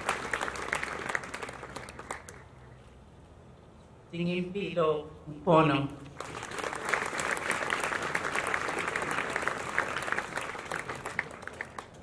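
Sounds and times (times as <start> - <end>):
audience applauding: 0.0 - 2.4, 6.2 - 12.0.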